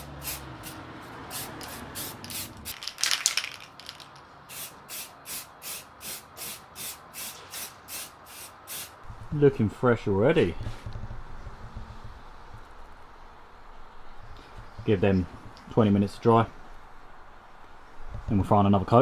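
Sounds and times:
spray paint can hissing: 0:00.0 - 0:09.0.

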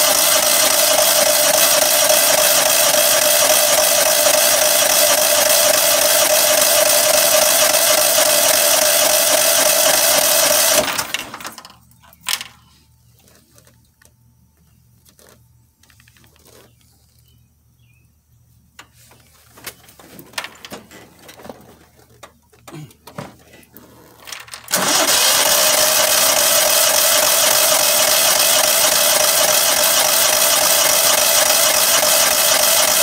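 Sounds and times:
starter motor cranking engine: 0:00.0 - 0:11.7, 0:23.8 - 0:33.0.

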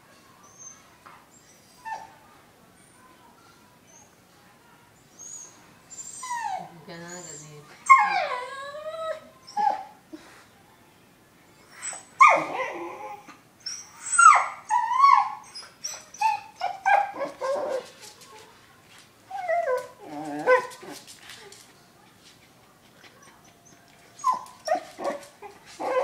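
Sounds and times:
dog whining and yelping: 0:05.2 - 0:10.0, 0:11.6 - 0:17.9, 0:19.3 - 0:21.0, 0:23.1 - 0:26.0.

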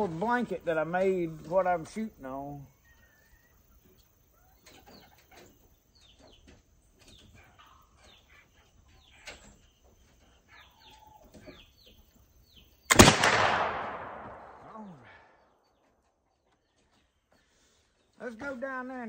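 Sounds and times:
small birds chirping: 0:00.0 - 0:19.0
rifle shot: 0:12.9 - 0:14.8.

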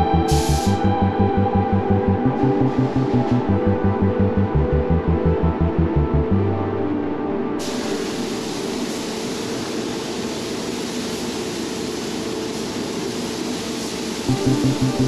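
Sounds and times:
hiss of rushing air: 0:00.3 - 0:00.9, 0:07.6 - 0:15.0.

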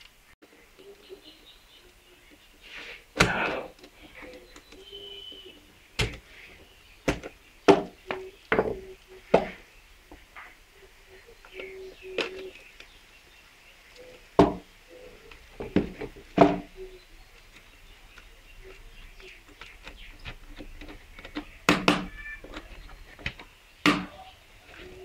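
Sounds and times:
plastic circuit breakers clicking: 0:06.0 - 0:06.4, 0:07.0 - 0:09.5, 0:15.3 - 0:24.2.

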